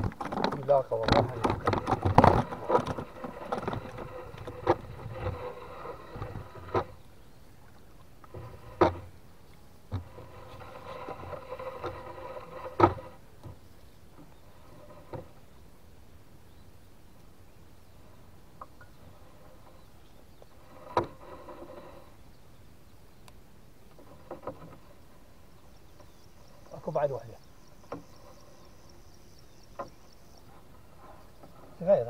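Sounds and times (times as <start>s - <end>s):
knocks against wooden hull: 0.0s - 5.5s, 8.3s - 9.1s, 12.6s - 13.6s.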